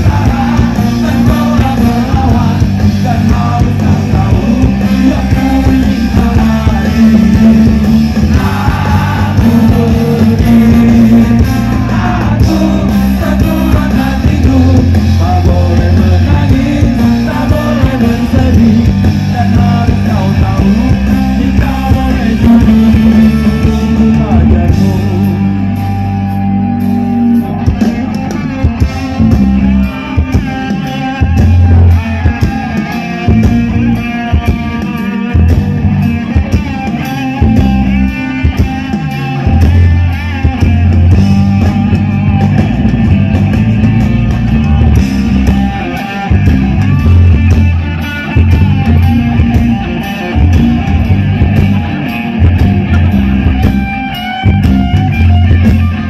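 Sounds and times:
vocals: 0.0s - 26.6s, 27.5s - 44.4s
electric guitar: 0.0s - 56.0s
live ska band: 0.0s - 56.0s.

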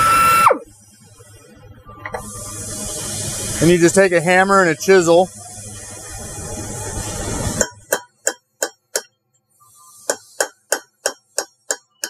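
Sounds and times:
steady hiss: 0.6s - 12.0s
hammer striking steel chisel: 7.6s - 9.2s, 10.1s - 12.0s.

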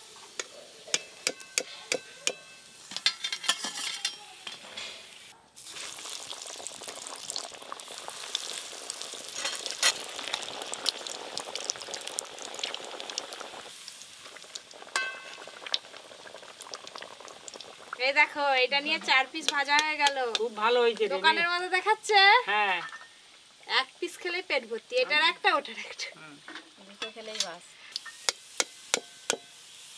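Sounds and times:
metal ladle clinking on wok: 0.4s - 4.7s, 15.0s - 15.4s
chicken deep-frying in oil: 5.0s - 21.1s, 27.9s - 29.9s.

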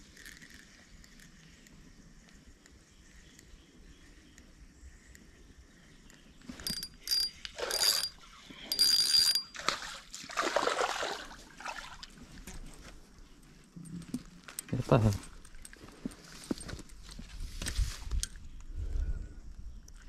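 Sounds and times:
fishing reel clicking and whirring: 6.5s - 9.5s
fish splashing: 9.5s - 12.1s.

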